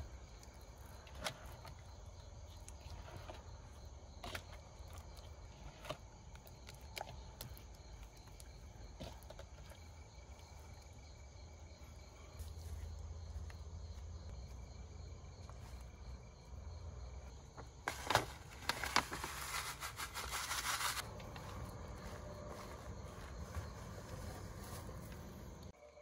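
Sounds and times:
crickets chirping: 0:00.0 - 0:26.0
crackling rustling noise: 0:17.6 - 0:25.7
low outdoor rumble: 0:21.0 - 0:25.7.

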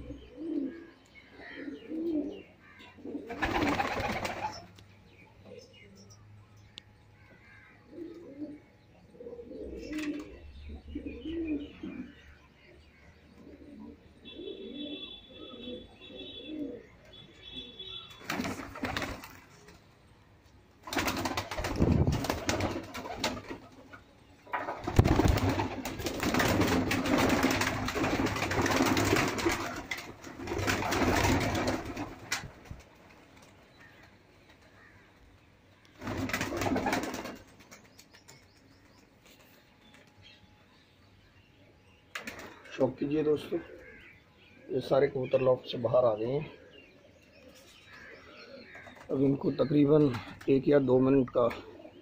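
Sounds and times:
pigeons cooing: 0:00.0 - 0:04.7, 0:07.4 - 0:12.3, 0:13.3 - 0:19.2, 0:42.2 - 0:50.6, 0:51.4 - 0:52.0
wings flapping and rustling: 0:03.2 - 0:04.8, 0:18.1 - 0:19.9, 0:20.8 - 0:34.8, 0:36.0 - 0:38.6, 0:42.1 - 0:42.7.

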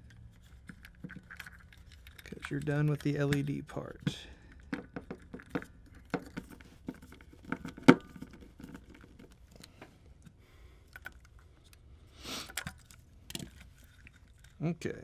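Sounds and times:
clicks and knocks of handled metal enclosure: 0:00.0 - 0:10.4.

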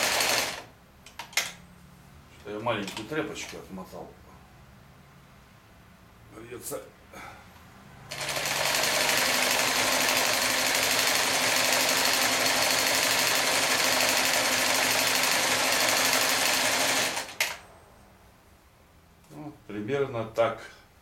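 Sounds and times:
electric sewing machine running: 0:00.0 - 0:00.7, 0:08.1 - 0:17.6.

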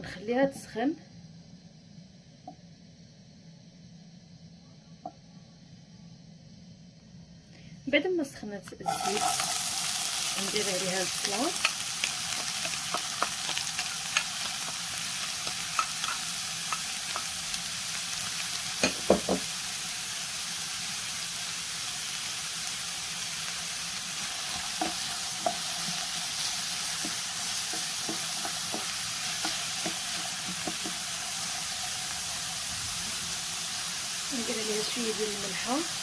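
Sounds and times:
onion sizzling in hot oil: 0:08.7 - 0:36.0.

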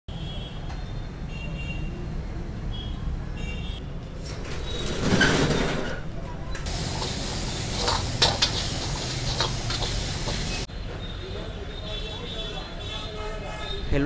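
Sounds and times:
rice sizzling in a wok: 0:06.7 - 0:10.7
metal spatula scraping a pan: 0:06.9 - 0:10.7.

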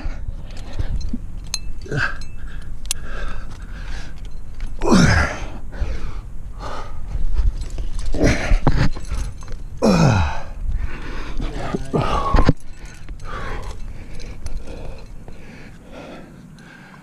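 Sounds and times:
heavy effortful breathing: 0:00.0 - 0:17.0
person groaning: 0:04.8 - 0:05.5, 0:09.8 - 0:10.5.

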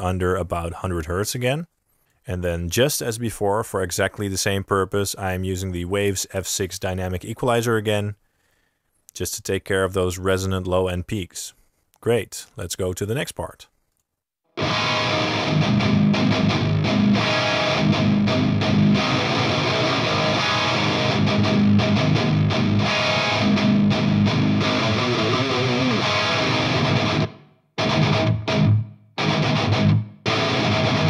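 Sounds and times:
distorted metal guitar chugs: 0:14.6 - 0:31.0.

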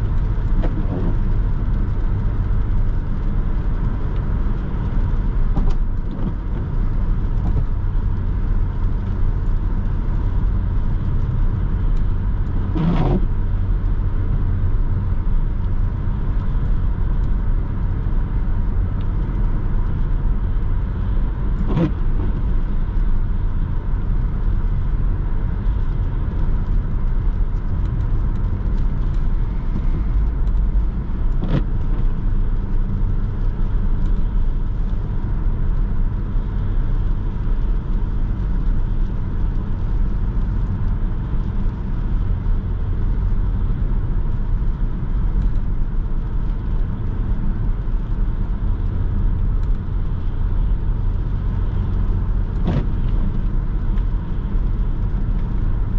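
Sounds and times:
car engine hum: 0:00.0 - 0:55.9
tyre and road noise: 0:00.0 - 0:55.9.

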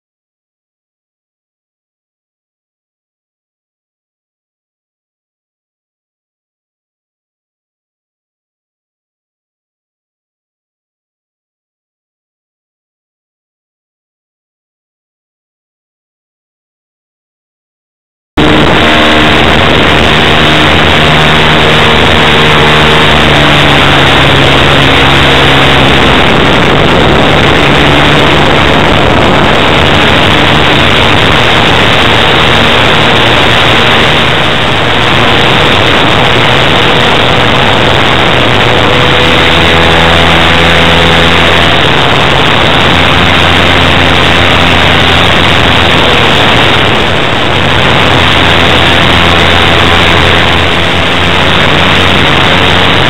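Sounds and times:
model aircraft engine running hard: 0:18.4 - 0:53.0
rush of air noise: 0:18.4 - 0:53.0.

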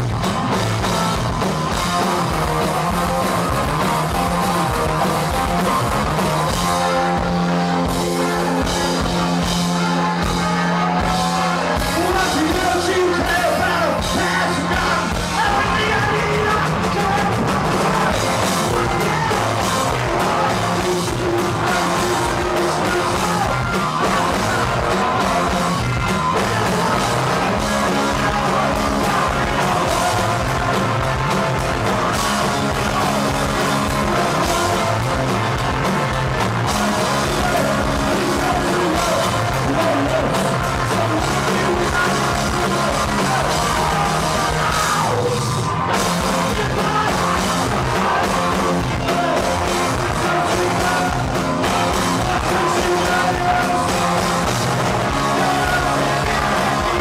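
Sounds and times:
punk rock band playing: 0:00.0 - 0:57.0
shouted vocals: 0:00.0 - 0:57.0.

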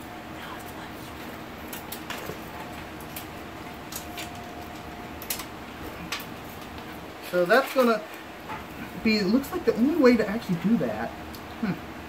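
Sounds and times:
cables clicking and rustling: 0:00.4 - 0:09.0.

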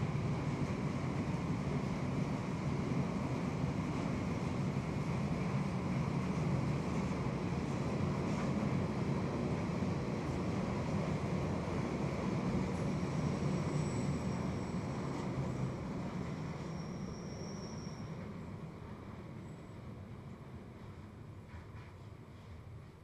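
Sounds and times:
train wheels rumbling on rail: 0:00.0 - 0:23.0
faint high squeal: 0:12.7 - 0:18.6, 0:19.4 - 0:19.8.

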